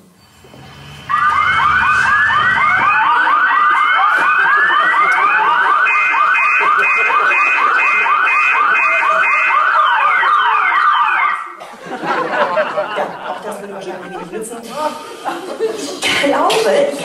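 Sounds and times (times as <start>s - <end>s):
rising alarm sweep: 0.0s - 11.5s
high pulsing beep: 0.2s - 3.2s
warbling electronic alarm: 0.3s - 11.5s.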